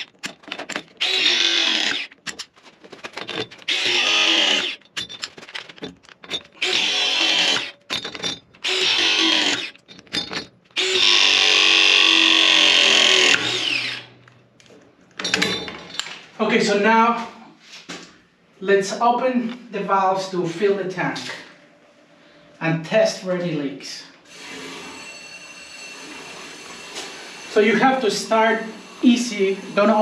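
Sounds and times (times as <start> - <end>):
press tool motor running: 0.9 - 2.2, 3.7 - 4.8, 6.6 - 7.7, 8.6 - 9.8, 10.8 - 14.2.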